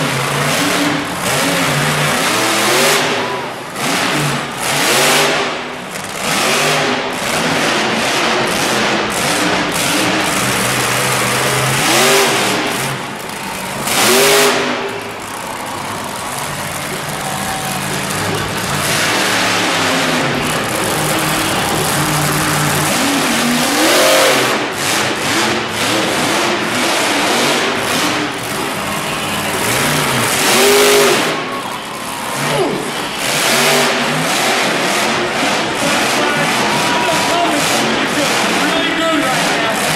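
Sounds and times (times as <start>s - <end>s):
monster truck engine revving: 0.0s - 39.9s.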